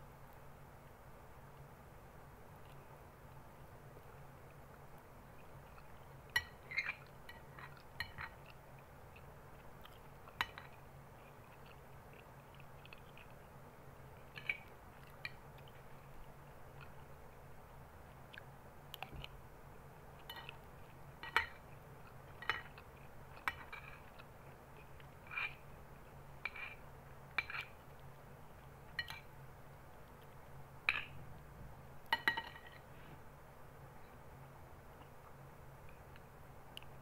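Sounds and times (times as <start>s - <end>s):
metal spoon clinking on glass bowl: 28.9s - 29.3s, 32.1s - 32.8s.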